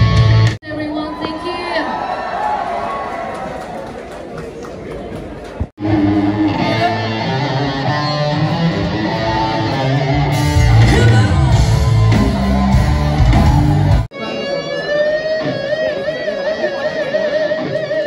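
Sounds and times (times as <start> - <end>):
rock music with electric guitar: 0.0 - 0.6, 5.8 - 18.0.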